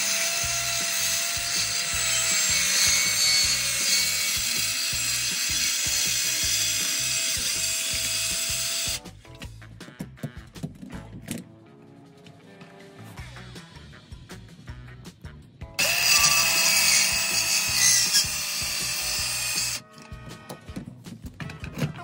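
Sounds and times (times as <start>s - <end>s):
circular saw cutting: 0.0s - 9.0s, 15.8s - 19.8s.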